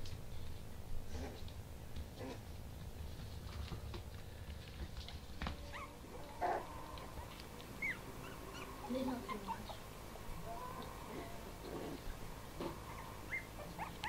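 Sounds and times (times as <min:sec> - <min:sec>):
puppies squeaking and yipping: 0:05.6 - 0:09.9, 0:12.8 - 0:14.0.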